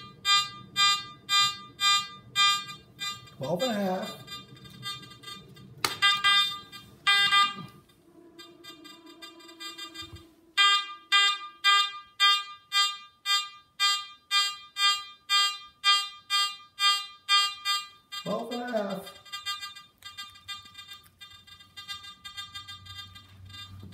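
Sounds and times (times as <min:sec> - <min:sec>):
metal detector beeping: 0:00.0 - 0:23.9
low hum: 0:04.0 - 0:11.5.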